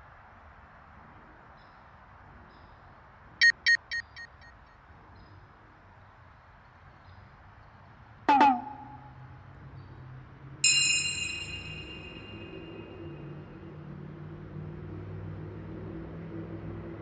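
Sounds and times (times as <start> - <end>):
bright chime ringing: 10.6 - 12.8.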